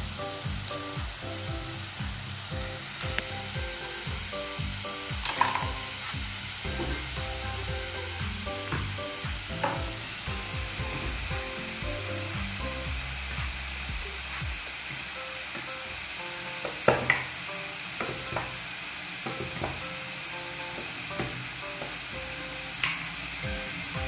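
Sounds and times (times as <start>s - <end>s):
background music with bass: 0.0s - 15.2s, 23.4s - 24.0s
fries sizzling in oil: 0.0s - 24.0s.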